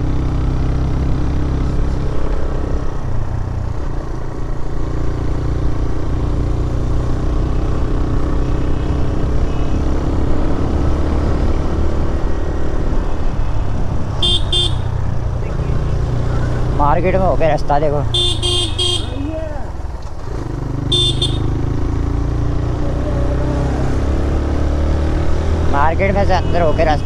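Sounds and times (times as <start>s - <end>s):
motorcycle engine running: 0.0s - 26.8s
short horn beeps: 14.2s - 14.9s, 18.1s - 19.1s, 20.9s - 21.5s.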